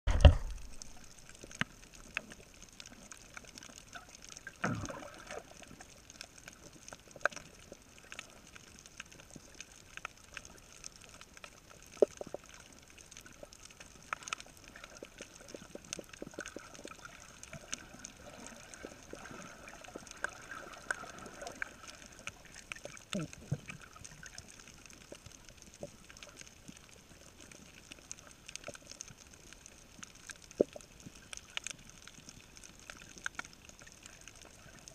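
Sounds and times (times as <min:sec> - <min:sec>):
sharp underwater clicks: 0:00.1 - 0:34.9.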